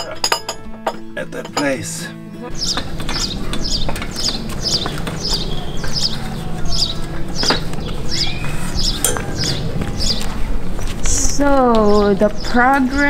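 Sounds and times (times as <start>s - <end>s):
small bird chirping: 2.5s - 10.4s.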